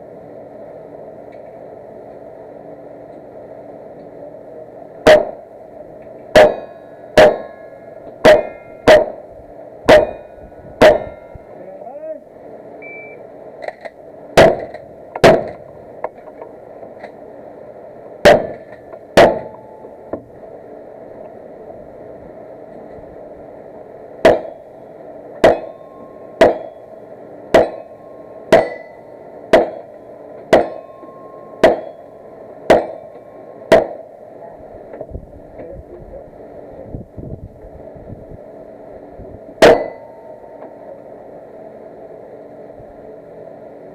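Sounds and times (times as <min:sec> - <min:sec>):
gunshots: 0:14.4 - 0:15.6, 0:18.2 - 0:19.5, 0:33.7 - 0:34.0.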